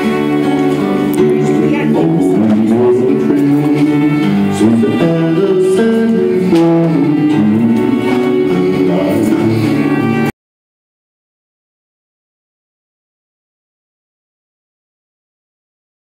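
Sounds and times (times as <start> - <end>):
acoustic guitar: 0.0 - 10.3
fiddle: 0.0 - 10.3
upright bass: 0.0 - 10.3.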